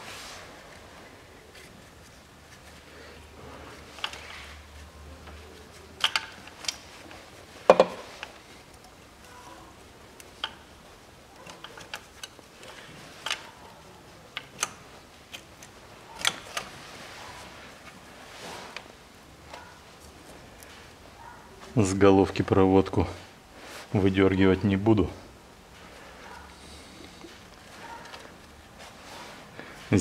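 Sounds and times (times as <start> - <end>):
plastic caps clicking and knocking: 7.7 - 8.4.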